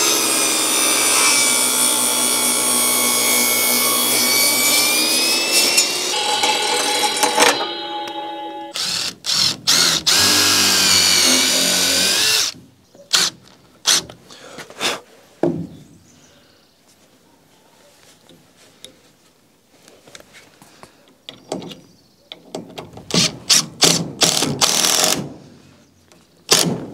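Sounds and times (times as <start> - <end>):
table saw blade spinning down: 2.0 - 8.2
drill driving screw into wood: 8.7 - 14.1, 23.2 - 25.3, 26.5 - 26.8.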